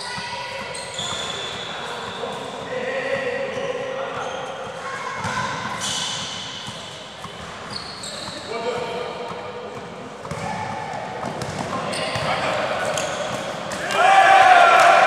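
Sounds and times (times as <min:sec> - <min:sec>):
sneaker squeaks: 0:00.0 - 0:14.0
players shouting: 0:13.7 - 0:15.0.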